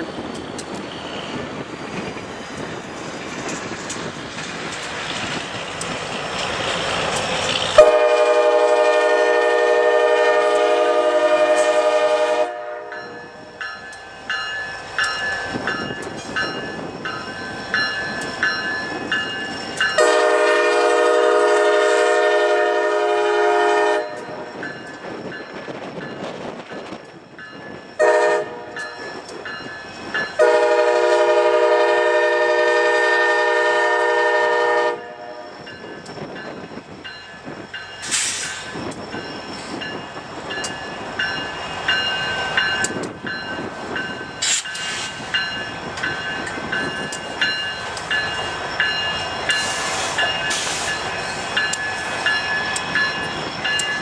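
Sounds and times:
wind noise: 0.0 - 9.7, 10.4 - 31.3, 34.9 - 54.0
rumble of approaching train: 0.0 - 54.0
locomotive air horn blasts: 7.8 - 12.9, 20.0 - 24.5, 28.0 - 28.8, 30.4 - 35.5.

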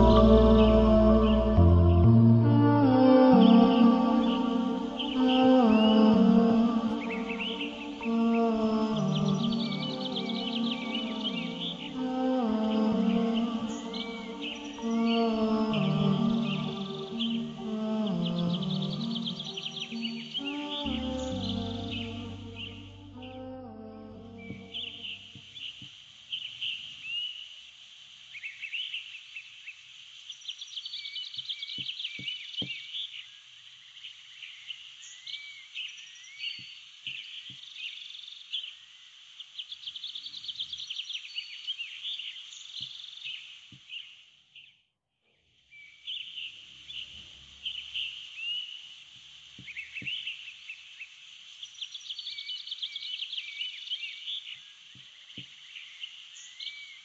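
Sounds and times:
steady outdoor hiss: 0.0 - 44.5, 45.7 - 57.0
frogs and birds chirping: 3.2 - 44.2, 45.7 - 57.0.

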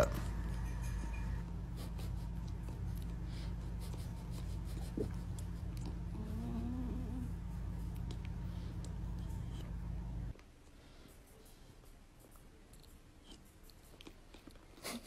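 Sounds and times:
low hum: 0.0 - 10.4.

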